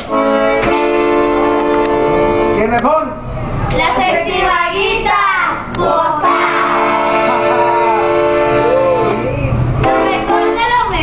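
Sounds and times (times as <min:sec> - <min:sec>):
button accordion playing chords: 0:00.0 - 0:02.8, 0:05.7 - 0:11.0.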